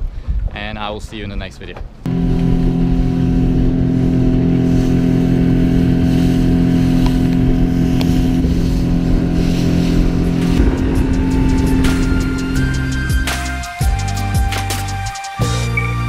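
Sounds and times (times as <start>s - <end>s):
wind: 0.0s - 16.0s
outboard motor running: 2.1s - 13.4s
rushing water: 4.6s - 14.9s.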